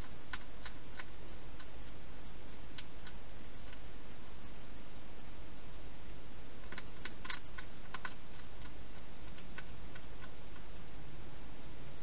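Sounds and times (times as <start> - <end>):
hedgehog chewing dry food: 0.0 - 3.9, 6.5 - 11.1
microphone hiss: 0.0 - 12.0.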